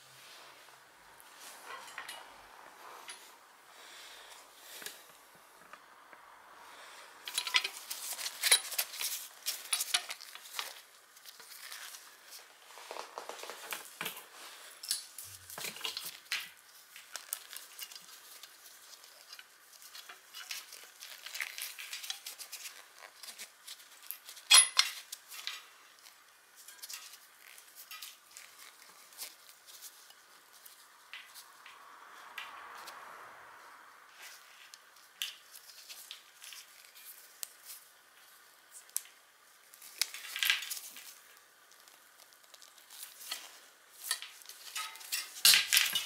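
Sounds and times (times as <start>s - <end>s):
bicycle chain clinking and rattling: 24.5s - 25.6s.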